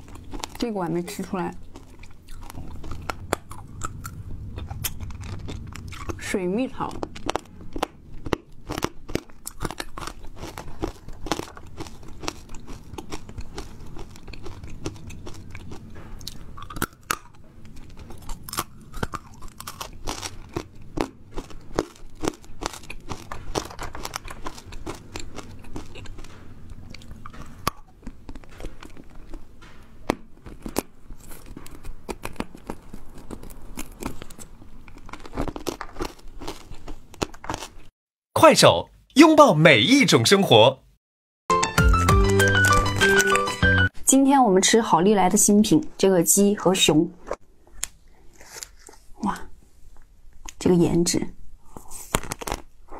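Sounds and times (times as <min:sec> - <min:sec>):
crunching and chewing candy: 0:00.0 - 0:37.9, 0:47.2 - 0:49.2, 0:51.6 - 0:52.9.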